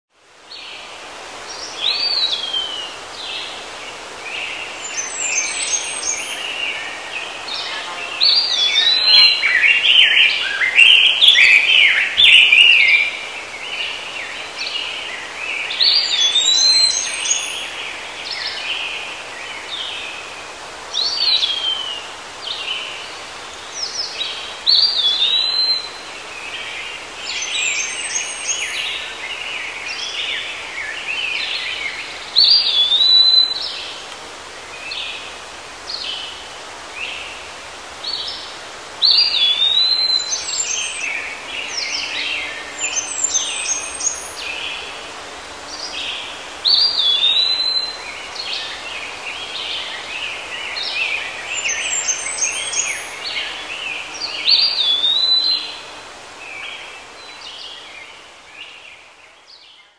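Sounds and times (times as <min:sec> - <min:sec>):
steady background hiss: 0:00.1 - 0:59.9
birds chirping: 0:01.5 - 0:20.2, 0:38.1 - 0:59.9.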